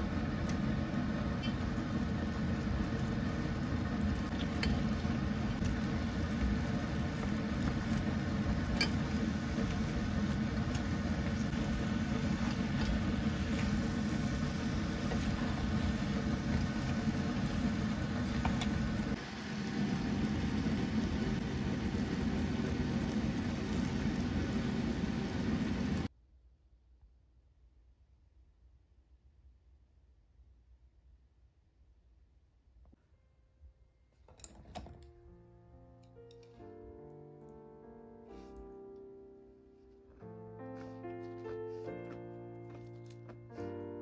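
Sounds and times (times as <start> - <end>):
machine-like hum: 0.0 - 26.1.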